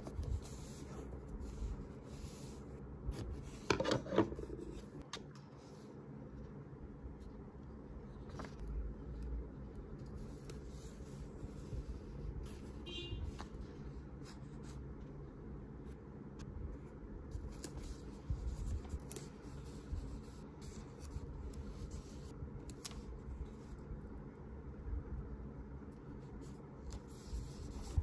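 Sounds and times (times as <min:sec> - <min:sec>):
steady low hum: 0:00.0 - 0:28.0
paper rustling: 0:08.1 - 0:09.2.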